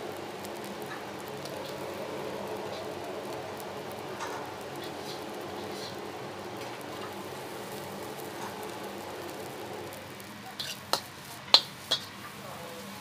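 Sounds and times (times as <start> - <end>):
food sizzling in a wok: 0.0 - 13.0
steel ladle clanking on wok: 10.6 - 12.1.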